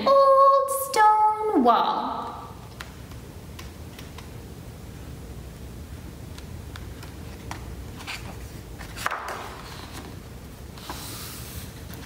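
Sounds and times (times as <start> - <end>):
low room hum: 0.0 - 12.0
paper page turning: 6.4 - 12.0.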